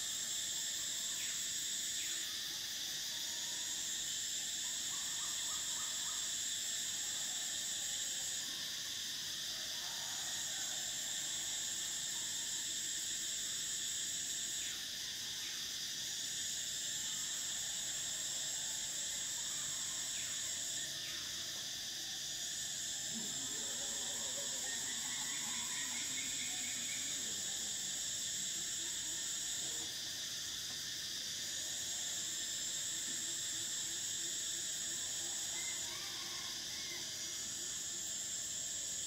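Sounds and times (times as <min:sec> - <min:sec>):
cicadas droning: 0:00.0 - 0:39.0.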